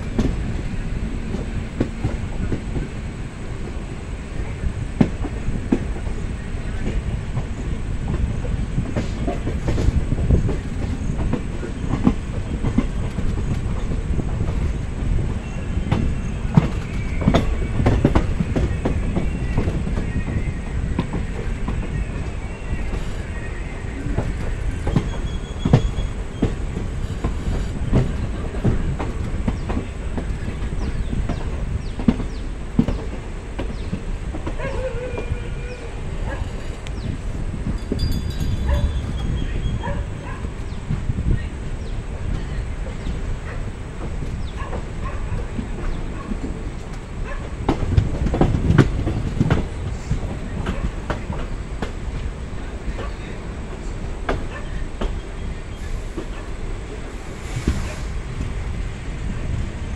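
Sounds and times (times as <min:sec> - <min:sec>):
wheels clacking on rail joints: 0:00.0 - 0:58.8
train rumble: 0:00.0 - 0:59.9
faint wheel squeal: 0:21.5 - 0:27.8.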